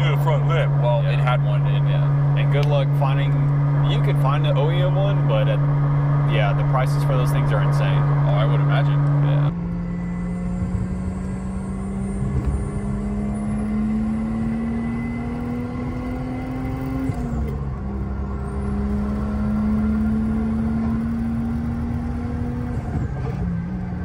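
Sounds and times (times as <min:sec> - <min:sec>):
car engine accelerating: 0:00.0 - 0:24.0.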